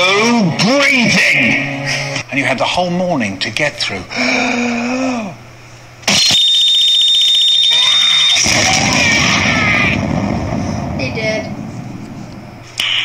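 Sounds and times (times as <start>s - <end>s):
high steady alarm-like tone: 6.1s - 8.4s
explosion with rumble: 8.4s - 11.9s
sudden loud blast: 8.4s - 11.9s.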